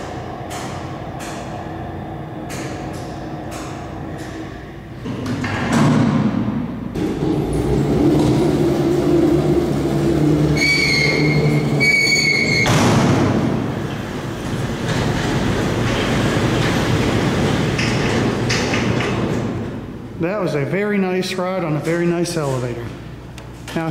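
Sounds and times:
elevator motor hum: 0:00.0 - 0:05.6, 0:06.9 - 0:20.2.

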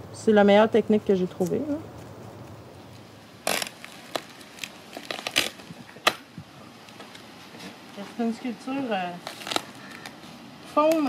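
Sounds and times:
crinkling and rustling of tape: 0:01.4 - 0:08.2, 0:09.1 - 0:11.0.

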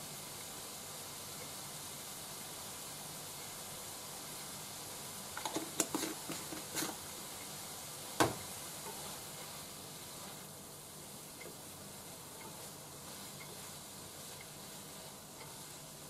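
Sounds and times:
food sizzling in a frying pan: 0:00.0 - 0:16.0
sharp knock at pan: 0:08.2 - 0:08.4.

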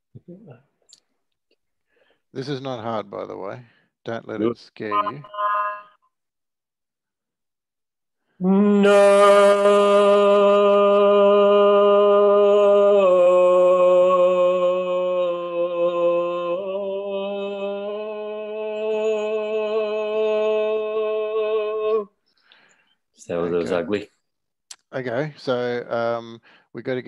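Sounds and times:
person speaking: 0:04.4 - 0:05.9, 0:23.2 - 0:24.1.

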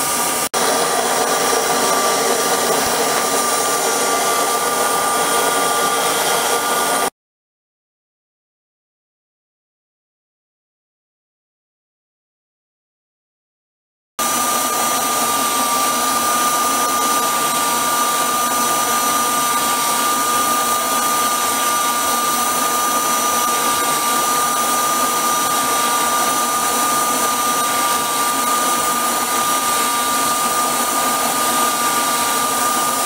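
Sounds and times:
electric motor whine: 0:00.0 - 0:07.1, 0:14.2 - 0:33.0.

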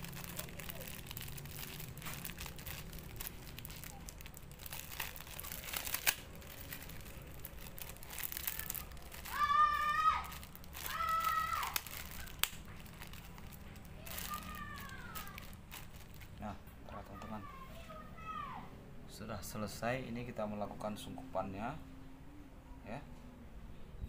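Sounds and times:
plastic bag crinkling: 0:00.0 - 0:16.5.

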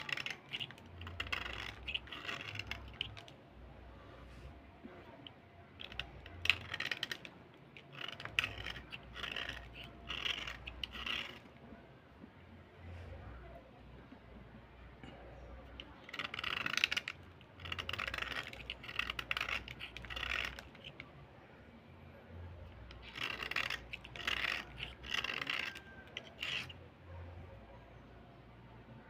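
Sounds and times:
metal blade scraping slate pencil: 0:00.0 - 0:03.4, 0:04.2 - 0:11.6, 0:15.1 - 0:21.1, 0:22.6 - 0:27.4.

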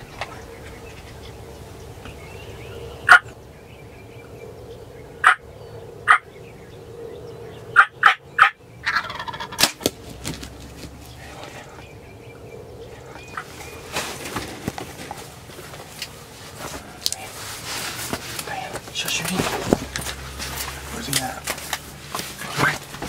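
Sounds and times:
turkey gobbling: 0:03.0 - 0:03.4, 0:05.2 - 0:05.4, 0:06.0 - 0:06.3, 0:07.7 - 0:10.1.

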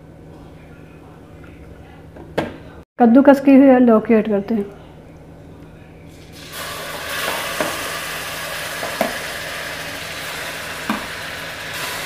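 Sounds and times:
grated vegetable sizzling in hot fat: 0:06.3 - 0:12.0.

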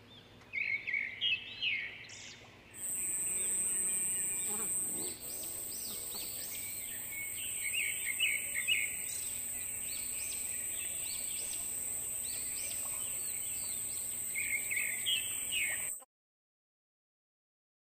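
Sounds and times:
high-pitched insect drone: 0:02.8 - 0:16.0.

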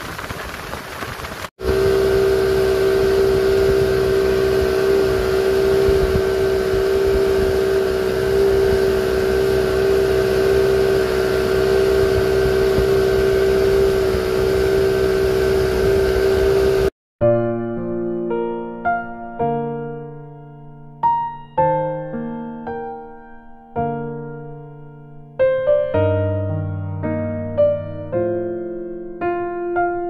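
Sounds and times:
rush of wake: 0:00.0 - 0:16.9
wind: 0:00.0 - 0:16.9
boat engine drone: 0:00.0 - 0:17.0
electric piano music: 0:01.6 - 0:30.0.

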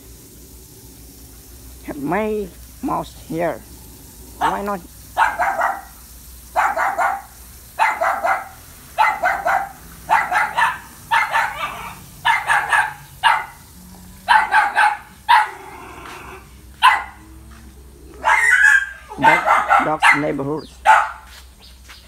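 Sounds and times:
dog barking: 0:04.4 - 0:17.2, 0:18.2 - 0:21.3.

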